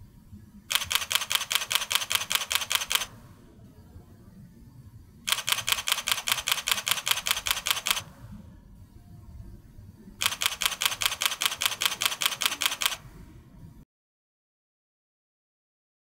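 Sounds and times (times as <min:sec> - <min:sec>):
camera shutter clicking rapidly: 0:00.7 - 0:03.2, 0:05.3 - 0:08.1, 0:10.2 - 0:13.0.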